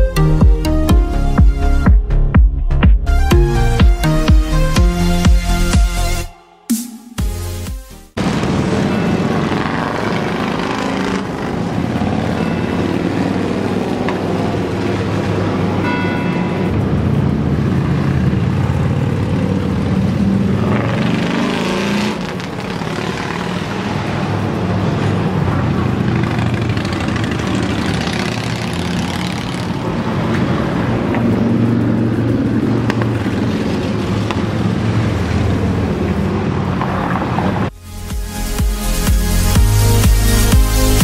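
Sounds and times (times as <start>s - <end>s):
car traffic: 0.0s - 41.0s
motorcycles passing: 8.1s - 37.8s.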